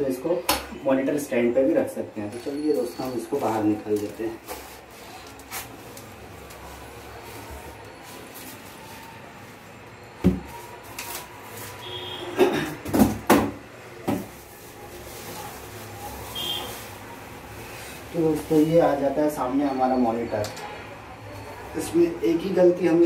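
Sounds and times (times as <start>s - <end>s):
packaging rustling: 2.4s - 9.6s, 14.2s - 19.0s
styrofoam and plastic bag knocking: 10.2s - 10.6s, 12.8s - 14.5s.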